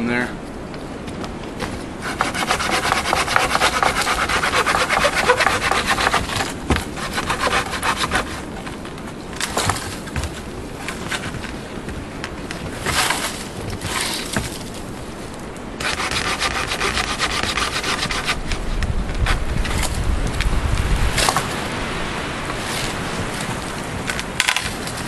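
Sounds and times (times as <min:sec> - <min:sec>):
hand saw rasping through wood: 0:02.0 - 0:08.6, 0:15.8 - 0:18.5.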